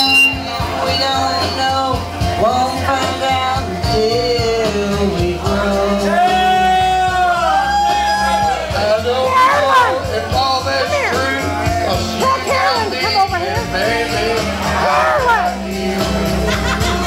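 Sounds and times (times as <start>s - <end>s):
backing track through speakers: 0.0s - 17.0s
person singing into microphone: 0.0s - 17.0s.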